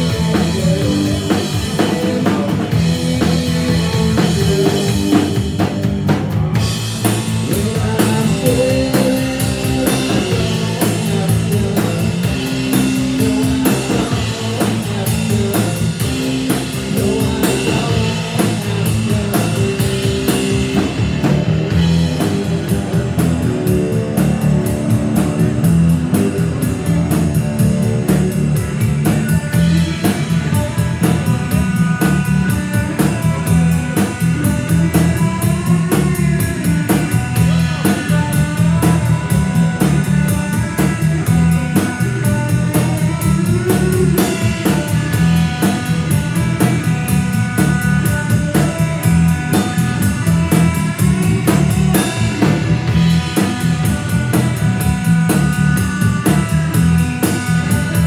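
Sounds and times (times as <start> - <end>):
drum kit: 0.0 - 58.0
guitar: 0.0 - 58.0
rock band playing live: 0.0 - 58.0.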